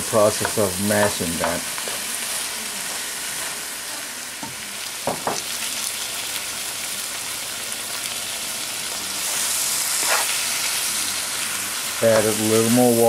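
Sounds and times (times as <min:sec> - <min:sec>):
food sizzling in a frying pan: 0:00.0 - 0:13.0
spoon knocking against pan: 0:05.1 - 0:05.4.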